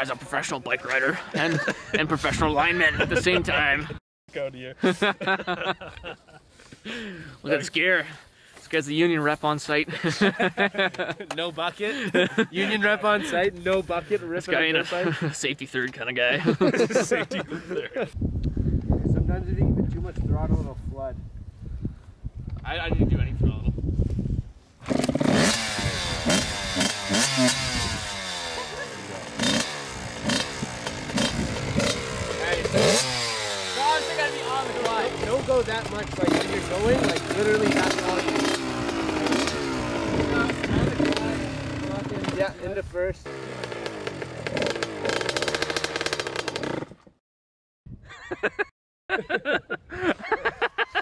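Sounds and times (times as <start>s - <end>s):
dirt bike engine revving: 24.8s - 47.0s.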